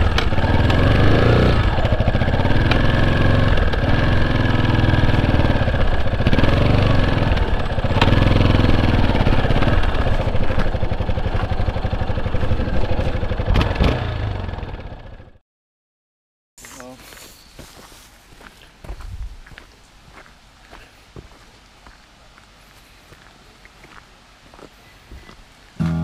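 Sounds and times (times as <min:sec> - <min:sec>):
motorcycle engine revving: 0:00.0 - 0:15.4.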